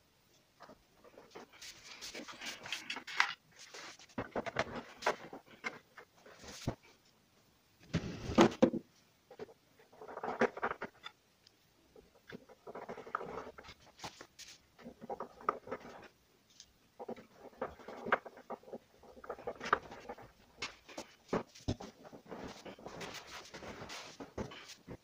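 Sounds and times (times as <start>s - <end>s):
scraping and clicking on plastic: 8.4s - 11.2s, 12.1s - 25.0s.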